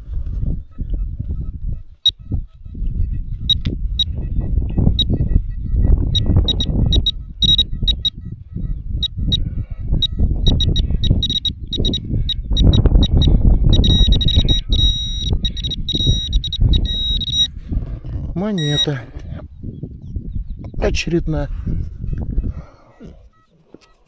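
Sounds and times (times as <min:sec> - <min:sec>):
metal detector beeping: 0:04.8 - 0:08.2, 0:10.0 - 0:17.5, 0:18.6 - 0:19.0.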